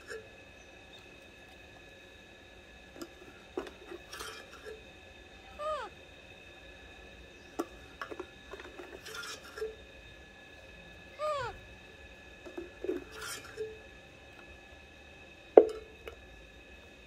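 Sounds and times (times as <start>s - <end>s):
baby monkey call: 5.5s - 6.0s, 11.1s - 11.6s.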